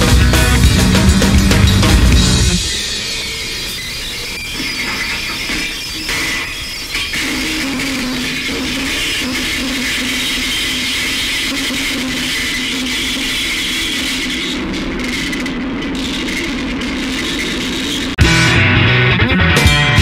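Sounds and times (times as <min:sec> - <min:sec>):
bass and drums rock music: 0:00.0 - 0:03.3, 0:18.2 - 0:20.0
noisy drone with hiss: 0:00.0 - 0:20.0.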